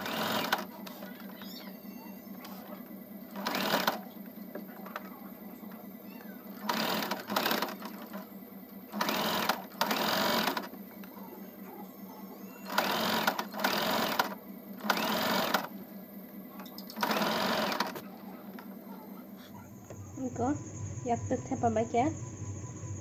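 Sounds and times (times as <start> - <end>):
sewing machine stitching: 0.0 - 1.4, 3.3 - 4.1, 6.6 - 8.3, 8.9 - 10.8, 12.6 - 15.7, 16.8 - 18.0.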